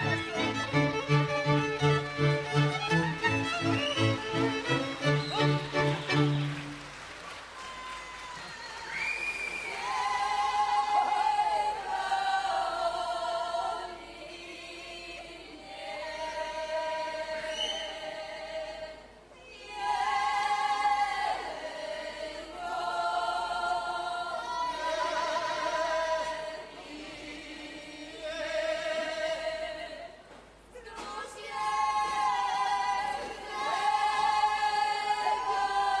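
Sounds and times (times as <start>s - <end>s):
group of people singing: 9.8s - 30.3s, 30.9s - 36.0s.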